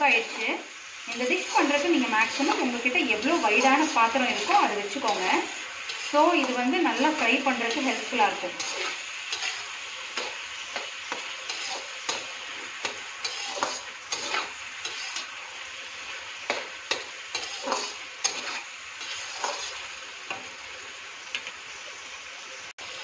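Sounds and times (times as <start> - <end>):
food sizzling in a wok: 0.0 - 23.0
spatula scraping and knocking pan: 1.1 - 15.4, 16.4 - 20.5.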